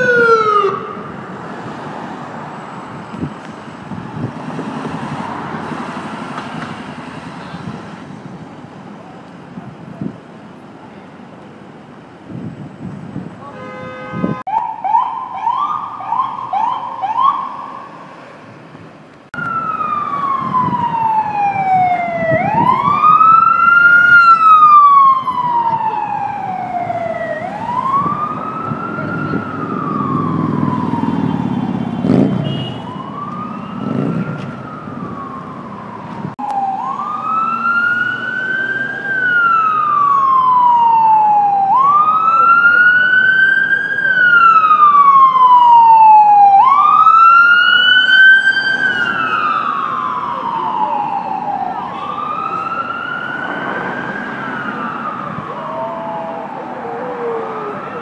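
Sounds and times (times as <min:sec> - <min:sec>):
siren yelps: 0:00.0 - 0:01.1, 0:14.5 - 0:18.1, 0:19.4 - 0:58.0
siren wail: 0:00.0 - 0:05.8, 0:14.3 - 0:18.1, 0:19.4 - 0:58.0
vehicle horn: 0:13.4 - 0:14.5, 0:32.1 - 0:32.9.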